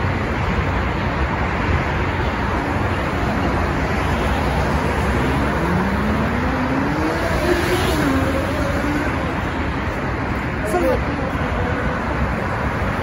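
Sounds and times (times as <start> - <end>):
road traffic rumble: 0.0 - 13.0
vehicle engine speeding up: 4.3 - 9.9.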